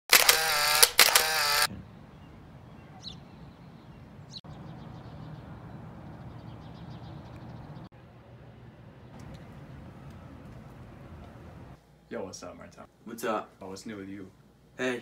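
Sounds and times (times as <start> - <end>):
bird chirps: 1.7 - 7.9.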